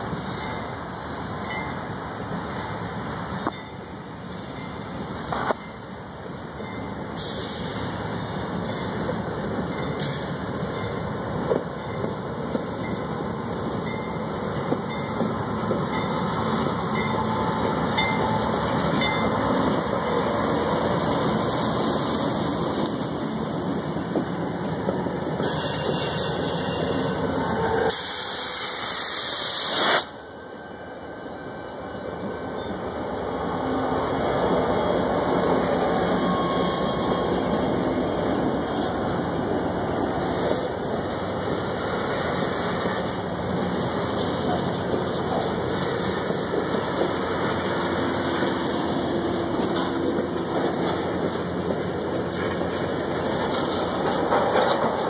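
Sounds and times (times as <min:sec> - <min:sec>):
freight cars rolling on rails: 0:00.0 - 0:30.2, 0:31.2 - 0:55.0
diesel locomotives passing: 0:00.0 - 0:55.0
loud air hiss: 0:07.2 - 0:08.1, 0:27.6 - 0:30.3.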